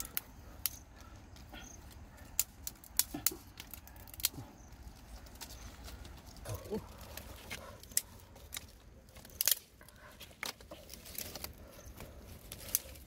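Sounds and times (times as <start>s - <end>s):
dry twigs snapping and cracking: 0.0s - 13.0s.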